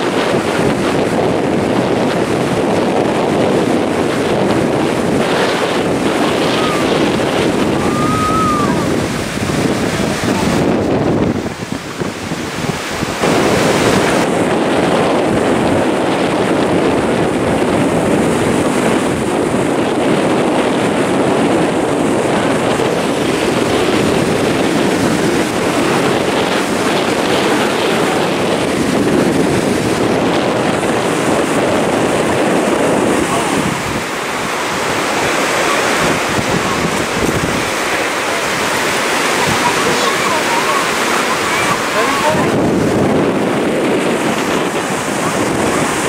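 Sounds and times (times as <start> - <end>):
ocean surf breaking on beach: 0.0 - 46.0
wind buffeting microphone: 0.0 - 46.0.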